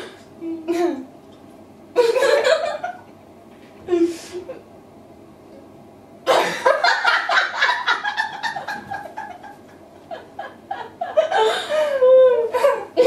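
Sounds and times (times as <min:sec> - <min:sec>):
women laughing: 0:02.0 - 0:03.2, 0:06.3 - 0:12.8.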